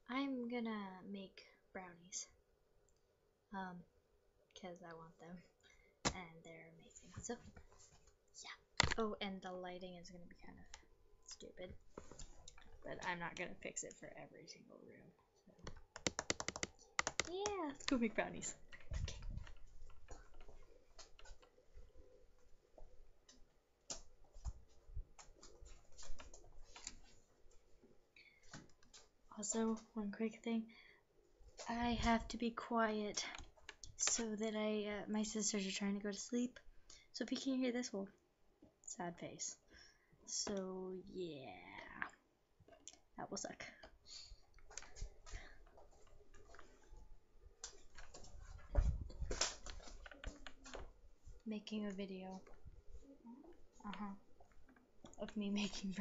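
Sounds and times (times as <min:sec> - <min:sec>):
laptop handling noise: 0:15.7 - 0:18.0, 0:47.6 - 0:51.0.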